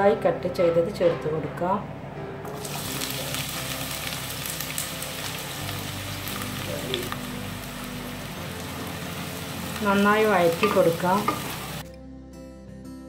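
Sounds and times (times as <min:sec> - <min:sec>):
onions sizzling in oil: 0:02.5 - 0:11.8.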